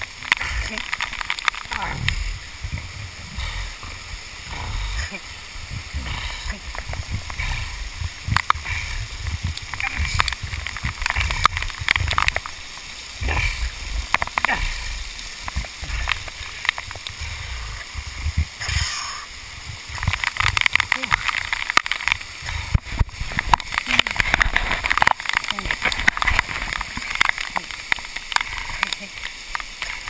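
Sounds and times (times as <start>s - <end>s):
falling water splashing: 0.0s - 30.0s
wind buffeting microphone: 1.8s - 12.4s, 13.1s - 20.7s
knocks and scrapes on rock: 5.9s - 12.6s.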